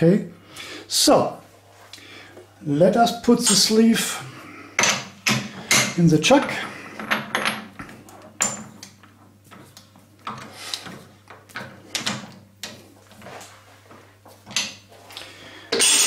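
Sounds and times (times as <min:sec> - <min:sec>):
metal clinks and scrapes: 0:15.8 - 0:16.0.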